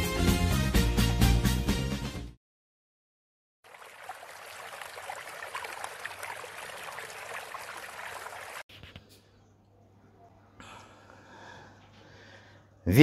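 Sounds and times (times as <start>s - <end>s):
water trickling and splashing: 3.6s - 8.7s.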